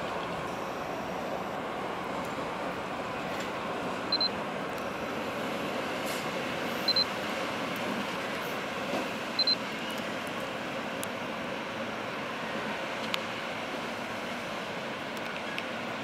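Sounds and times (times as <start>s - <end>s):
electric locomotive humming: 0.0s - 16.0s
short high double beeps: 4.1s - 4.4s, 6.9s - 7.1s, 9.4s - 9.6s.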